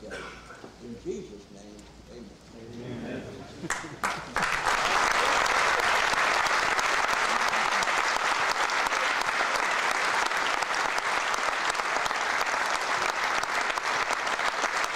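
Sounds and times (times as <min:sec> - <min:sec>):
audience applauding: 0:03.7 - 0:14.9.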